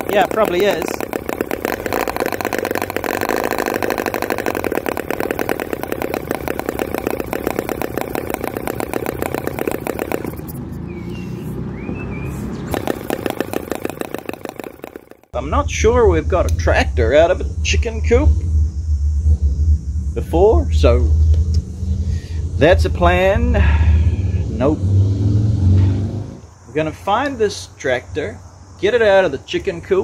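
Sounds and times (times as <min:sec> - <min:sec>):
model engine running: 0:00.0 - 0:10.8, 0:12.5 - 0:15.3.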